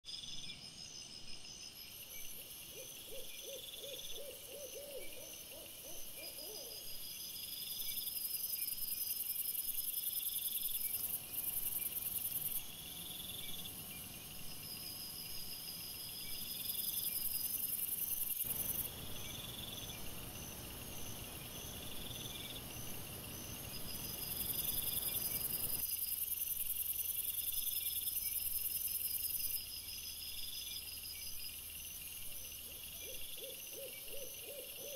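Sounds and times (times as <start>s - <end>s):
insects chirping: 0.1s - 34.9s
owl hooting: 2.7s - 6.8s, 32.7s - 34.9s.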